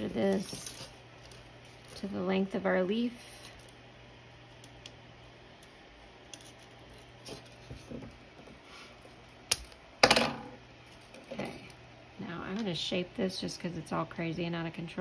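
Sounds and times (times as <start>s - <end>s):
wire rustling and ticking: 0.0s - 2.4s.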